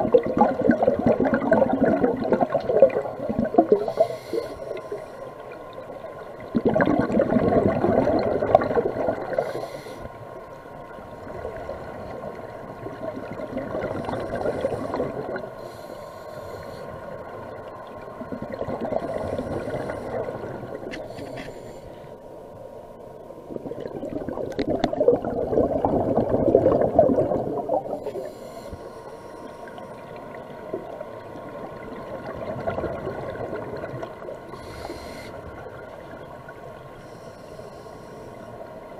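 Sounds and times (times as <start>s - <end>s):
bubbling exhale: 0.0s - 5.1s, 13.6s - 16.8s, 18.4s - 21.8s
regulator inhale hiss: 3.7s - 5.4s, 9.3s - 10.3s, 14.0s - 17.2s, 19.0s - 22.2s, 27.9s - 30.0s, 34.5s - 35.7s, 36.9s - 38.7s.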